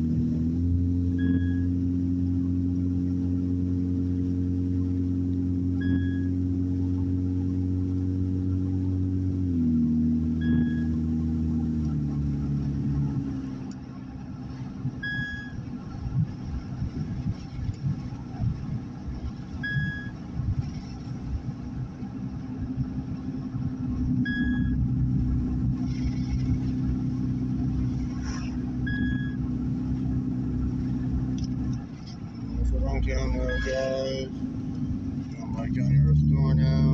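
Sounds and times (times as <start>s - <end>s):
car engine and road rumble: 0.0s - 36.9s
short electronic beep: 1.2s - 1.8s, 5.8s - 6.4s, 10.4s - 11.0s, 15.0s - 15.6s, 19.6s - 20.2s, 24.2s - 24.8s, 28.8s - 29.4s, 33.2s - 34.2s.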